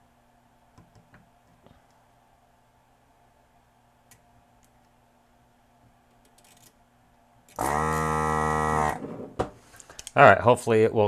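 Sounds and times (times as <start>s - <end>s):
vacuum pump humming: 7.5s - 9.1s.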